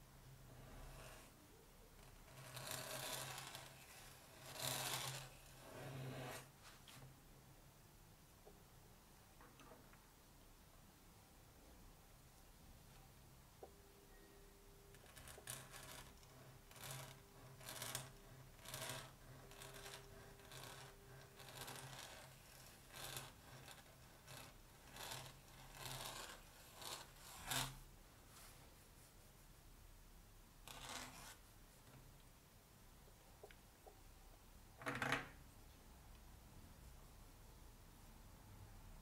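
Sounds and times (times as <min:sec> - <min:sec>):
pen nib scratching paper: 0:02.2 - 0:06.5, 0:14.9 - 0:27.8, 0:30.7 - 0:31.4.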